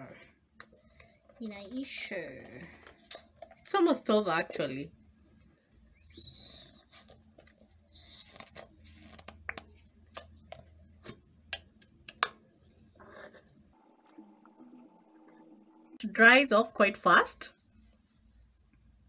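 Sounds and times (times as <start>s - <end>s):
plastic tube rustling and crinkling: 6.6s - 11.2s.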